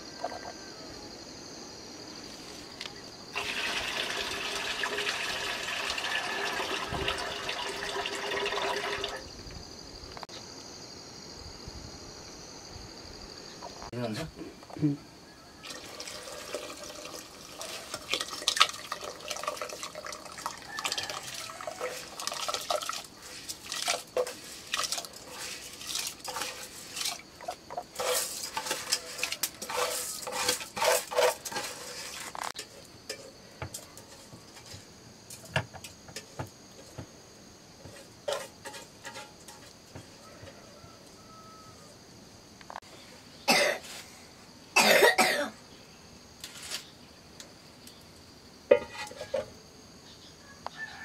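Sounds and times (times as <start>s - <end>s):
metal pots and lids clinking: 23.7s - 34.7s, 38.2s - 39.8s, 48.7s - 49.5s.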